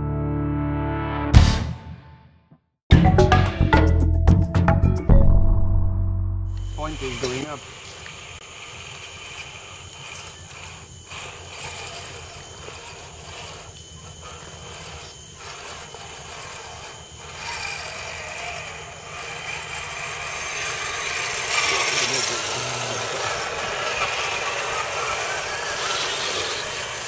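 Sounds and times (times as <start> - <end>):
toy truck motor whirring: 6.6 - 27.0
tyres on dirt: 6.6 - 27.0.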